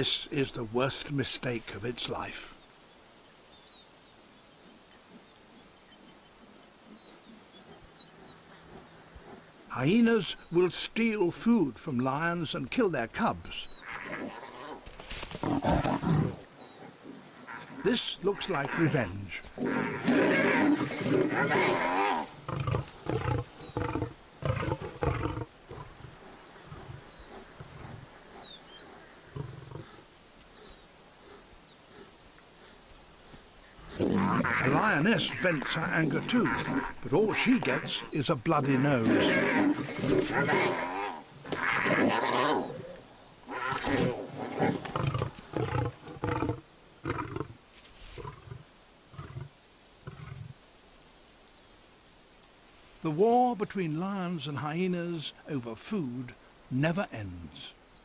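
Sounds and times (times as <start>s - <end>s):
faint bird chirps: 2.4s - 9.1s
lions roaring: 19.6s - 28.4s, 33.9s - 47.5s
lion roaring in grunts: 33.9s - 43.0s.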